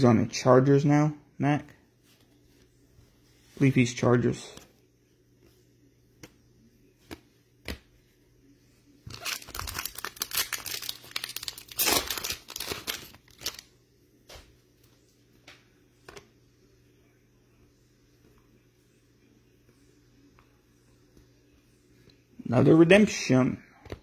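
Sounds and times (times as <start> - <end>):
plastic wrapper crackling: 9.1 - 13.7.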